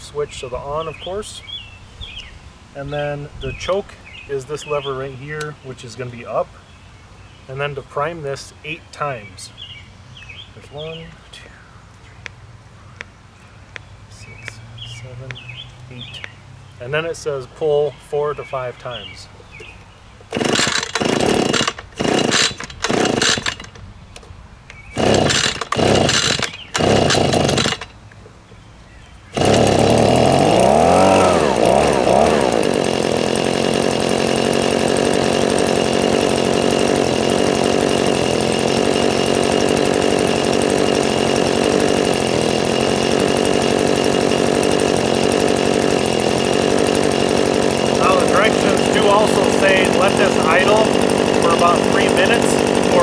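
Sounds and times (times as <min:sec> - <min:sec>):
leaf blower engine running: 0:18.5 - 0:23.9, 0:24.9 - 0:28.0, 0:29.3 - 0:53.0
recoil starter cord pulls: 0:20.2 - 0:24.3, 0:25.0 - 0:28.0, 0:29.4 - 0:53.0.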